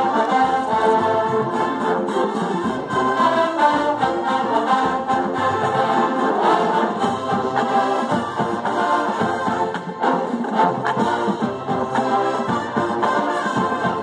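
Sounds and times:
brass marching band playing: 0.0s - 14.0s.

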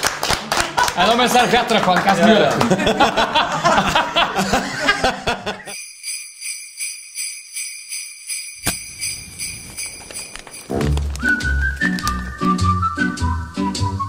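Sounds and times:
voices and laughter: 2.4s - 5.8s
jingle bells shaken: 5.7s - 12.4s.

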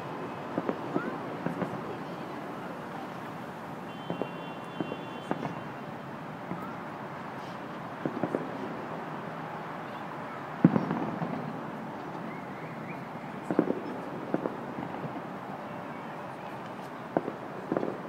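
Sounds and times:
traffic hum: 0.0s - 18.0s
distant fireworks bangs: 0.4s - 5.8s, 7.9s - 8.8s, 10.6s - 12.3s, 13.4s - 15.4s, 16.5s - 18.0s.

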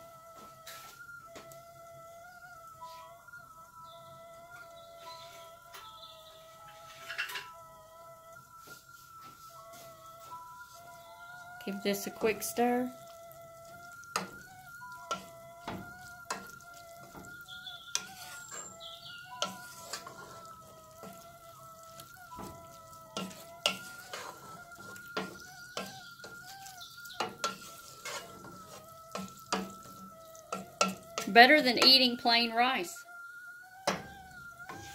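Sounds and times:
food sizzling faintly: 0.0s - 34.9s
thin steady tone: 0.0s - 34.9s
spoon scraping a metal pot: 6.8s - 7.6s, 13.9s - 32.4s, 33.8s - 34.9s.

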